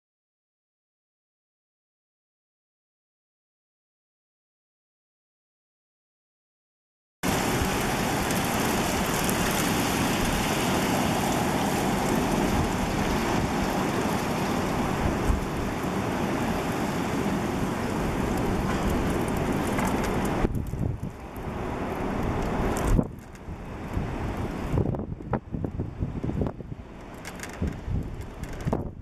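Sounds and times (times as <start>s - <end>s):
hissing rain shower: 7.2s - 29.0s.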